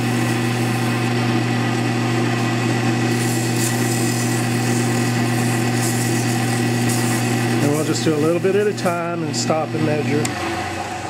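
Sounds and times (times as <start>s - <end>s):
sandpaper scratching spinning wood: 0.0s - 1.4s, 2.4s - 9.2s
lathe motor humming: 0.0s - 11.0s.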